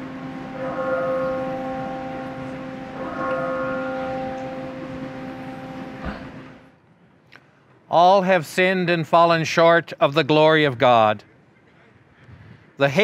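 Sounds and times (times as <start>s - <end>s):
church bell tolling: 0.0s - 6.7s.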